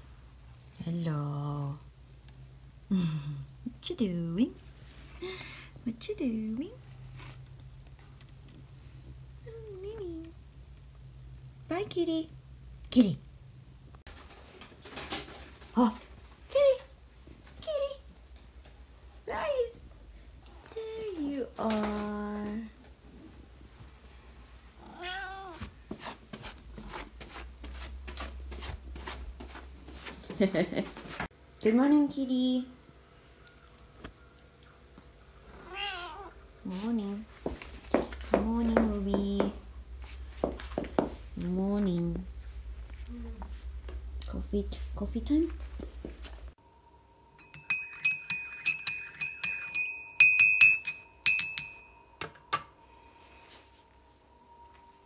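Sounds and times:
cat meowing: 24.8 - 25.6, 35.6 - 36.4
teaspoon clinking in ceramic mug: 47.4 - 51.9.

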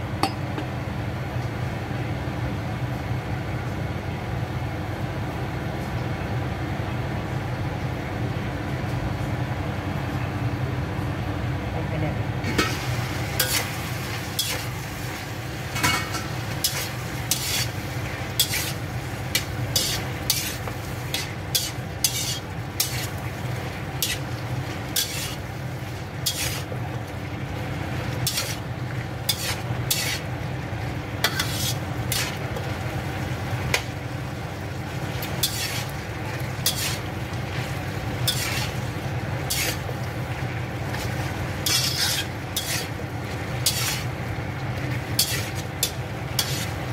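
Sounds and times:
food sizzling in a wok: 12.4 - 46.9
spatula clacking and scraping wok: 12.5 - 26.9, 27.9 - 30.4, 31.2 - 32.8, 35.1 - 44.2, 44.8 - 46.9.

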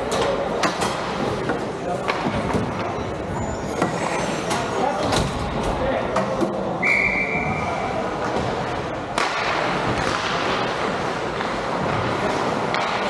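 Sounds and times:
arena noise and voices: 0.0 - 13.0
whistle blast: 6.8 - 7.7.

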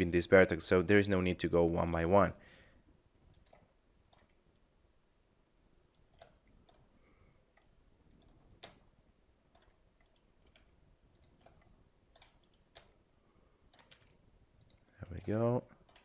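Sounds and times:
computer mouse and keyboard clicks: 3.3 - 4.7, 5.9 - 6.9, 7.5 - 8.9, 9.5 - 13.0, 13.7 - 16.0.

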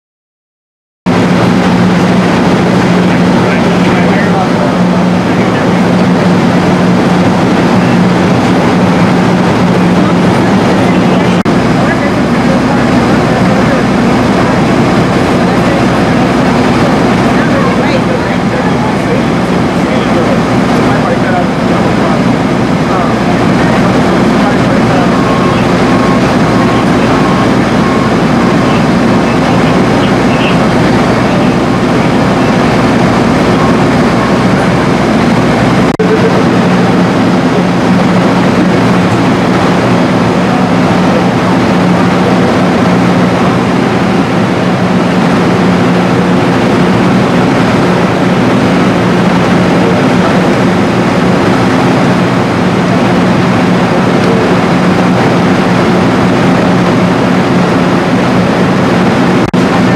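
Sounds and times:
diesel engine idling: 1.1 - 59.9.

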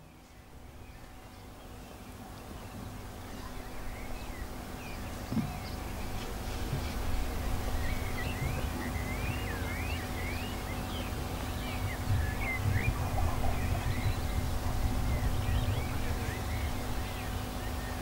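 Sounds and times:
faint steady hum: 0.0 - 18.0
small birds chirping: 0.0 - 18.0
wind rumble on microphone: 0.0 - 18.0.

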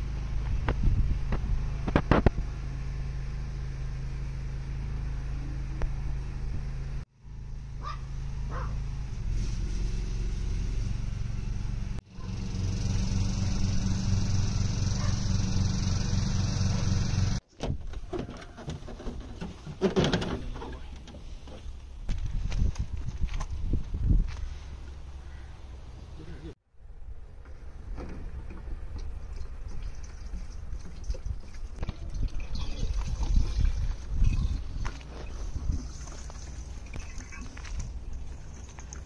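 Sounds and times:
lawn tractor engine running: 0.0 - 17.4.

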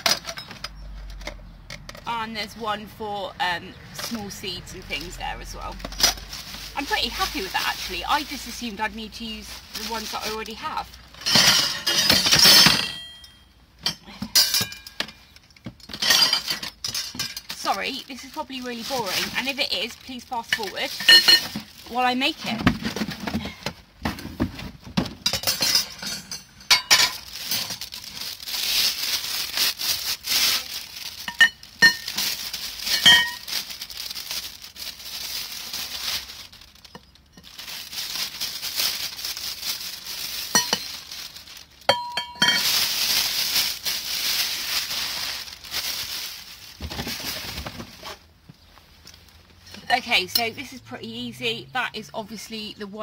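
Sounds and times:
cardboard and plastic tearing: 4.0 - 11.3, 17.1 - 25.2, 27.1 - 41.9, 42.6 - 48.3
metal poles clinking on concrete: 11.2 - 15.2, 20.5 - 21.7, 25.3 - 27.7, 40.5 - 40.9, 41.9 - 42.7, 49.8 - 50.7.

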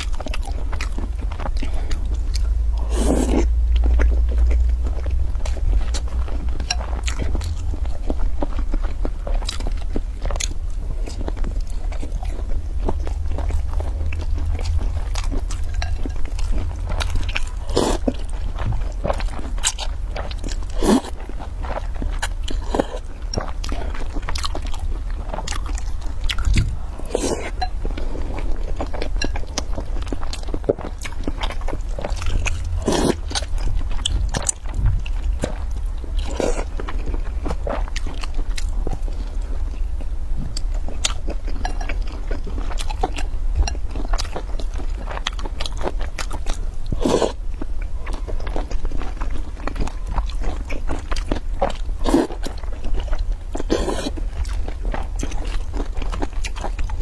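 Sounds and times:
chewing with wet mouth smacks: 0.0 - 57.0
steady low hum: 0.0 - 57.0.

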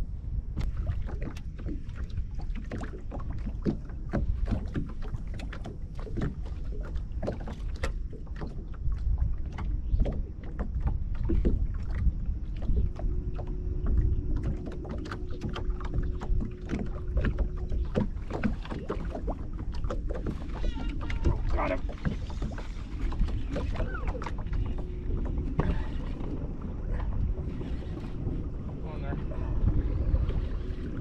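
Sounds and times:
low rumble: 0.0 - 7.2, 7.9 - 31.0
waves lapping against boat hull: 0.0 - 31.0
steady hum: 11.0 - 31.0.

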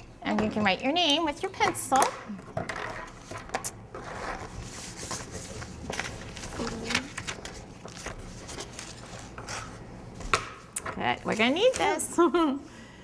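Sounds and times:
paper rustling: 4.0 - 9.8.

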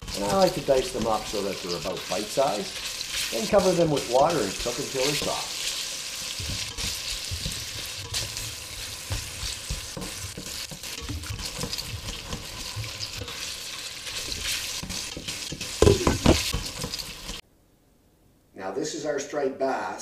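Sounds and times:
food hissing and sizzling: 0.0 - 17.4
water pouring into pot: 0.0 - 17.4
glass lid knocking on pot: 15.8 - 16.4.

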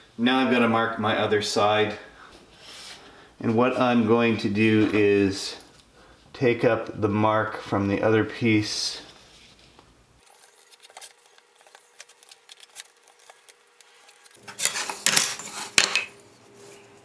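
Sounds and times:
clatter and scrape on bench: 14.4 - 16.1.

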